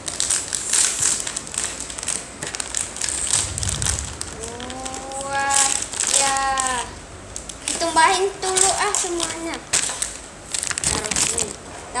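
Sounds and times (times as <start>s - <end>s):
plastic candy bag crinkling: 0.0s - 3.4s, 4.4s - 7.5s, 8.5s - 11.6s
child making vocal sounds: 4.4s - 6.9s.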